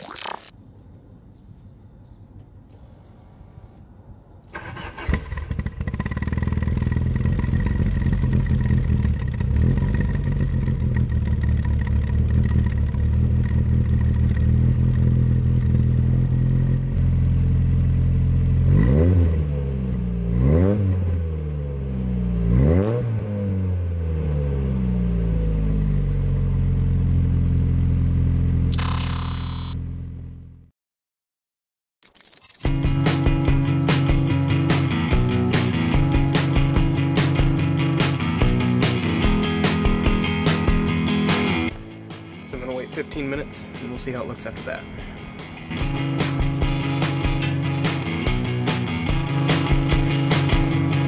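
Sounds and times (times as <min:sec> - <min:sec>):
car engine starting and idling: 0:02.6 - 0:18.7
engine revving in quick blips: 0:22.3 - 0:23.8.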